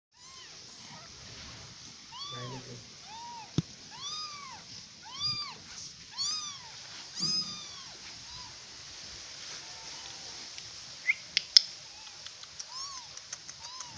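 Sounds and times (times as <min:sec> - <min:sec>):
kitten meowing: 0:00.2 - 0:01.1, 0:02.1 - 0:08.6, 0:11.9 - 0:13.9.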